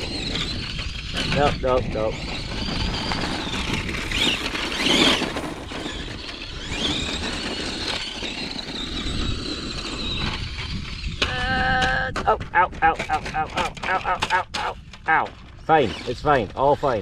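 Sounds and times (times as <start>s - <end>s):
toy truck electric motor whining: 0.0s - 17.0s
wheels crunching on gravel: 0.0s - 17.0s.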